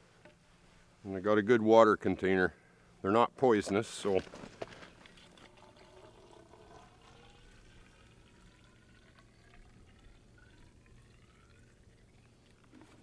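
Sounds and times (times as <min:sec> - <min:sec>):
water glugging from plastic bottle: 0:04.1 - 0:13.0.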